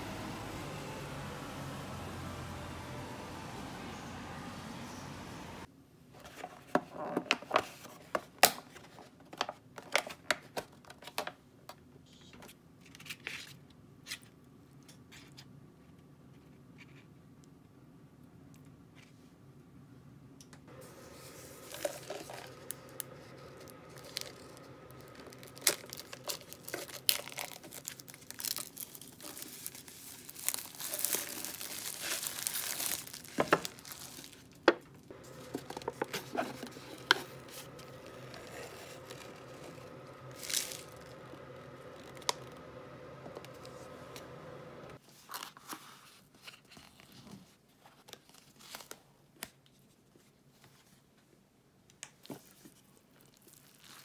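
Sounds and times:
faint steady hum: 15.6s - 45.0s
plastic film tearing and crinkling: 20.8s - 34.6s, 35.2s - 44.0s, 53.2s - 54.0s
paper lid peeling: 35.2s - 43.8s.

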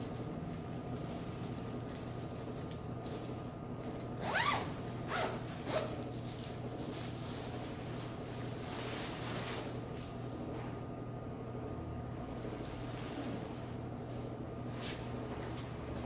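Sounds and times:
soft rustle of nylon fabric: 0.0s - 10.8s, 12.2s - 16.0s
zipper being pulled: 4.2s - 6.1s.

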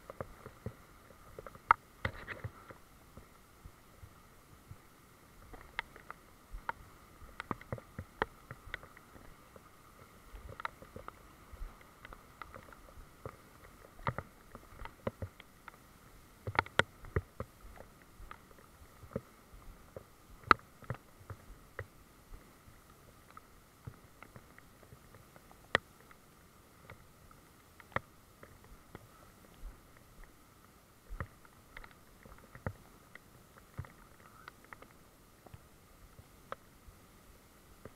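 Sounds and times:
faint steady hiss: 0.0s - 37.9s.

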